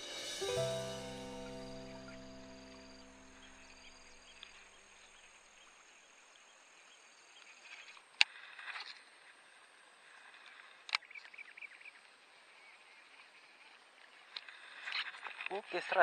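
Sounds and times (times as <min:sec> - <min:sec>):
background music: 0:00.0 - 0:04.5.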